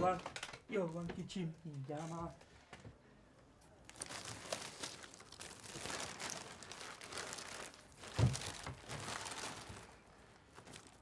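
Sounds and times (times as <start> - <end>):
plastic bags rustling: 3.8 - 11.0.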